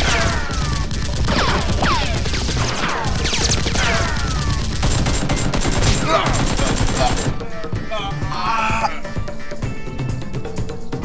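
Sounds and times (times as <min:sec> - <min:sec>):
rapid automatic gunfire: 0:00.0 - 0:07.4.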